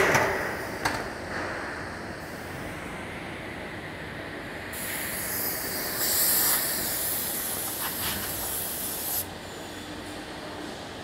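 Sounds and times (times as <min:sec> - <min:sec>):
compressed air hiss: 0:04.7 - 0:09.3.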